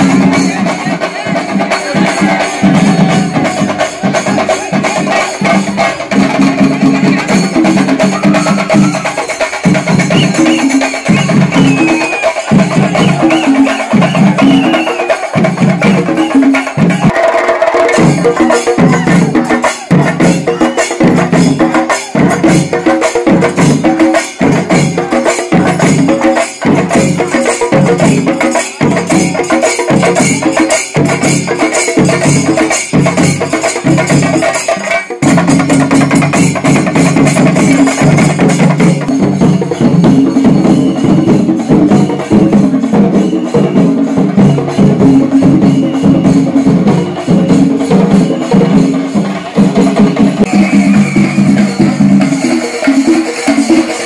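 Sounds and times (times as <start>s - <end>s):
loud drum and cymbal music: 0.0s - 54.0s.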